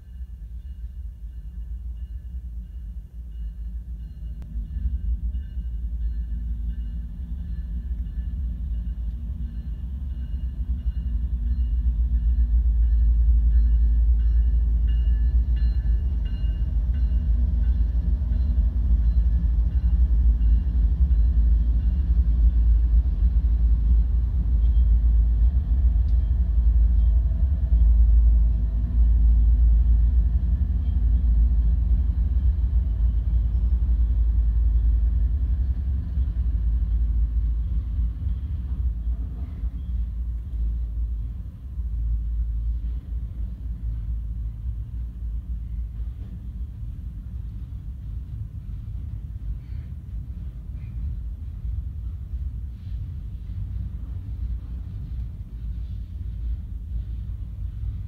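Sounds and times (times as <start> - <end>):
freight train rumbling past: 0.0 - 58.0.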